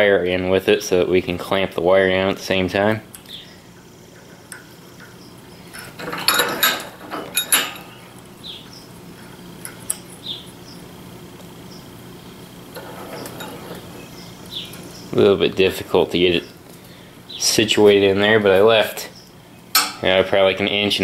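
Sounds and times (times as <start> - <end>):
metallic clinks and rattles: 5.7 - 8.0.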